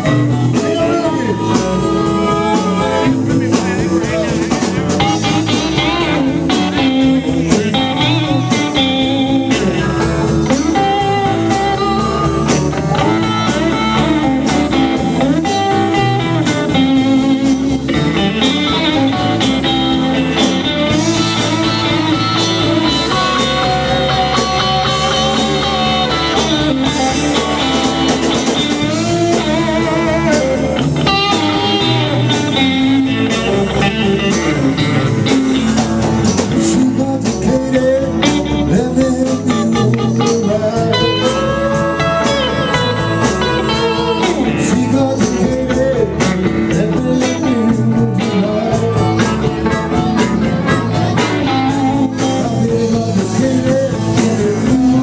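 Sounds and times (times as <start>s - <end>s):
blues-rock band playing: 0.0s - 55.0s
electric guitar: 0.0s - 55.0s.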